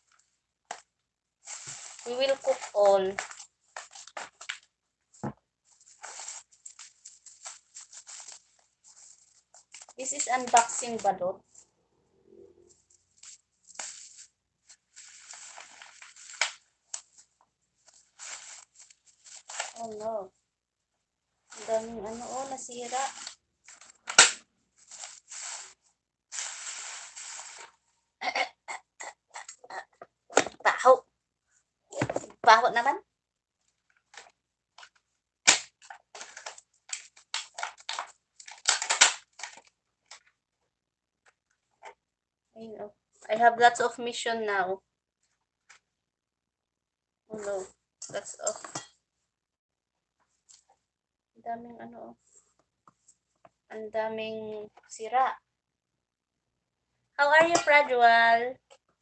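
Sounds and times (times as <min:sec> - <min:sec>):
plastic packaging crinkling: 0:01.4 - 0:11.0, 0:13.1 - 0:20.1, 0:21.5 - 0:27.8, 0:34.0 - 0:40.3
plastic trays crackling: 0:01.5 - 0:04.7, 0:05.7 - 0:11.0, 0:13.2 - 0:17.3, 0:17.9 - 0:20.1, 0:21.5 - 0:27.8, 0:34.0 - 0:40.3.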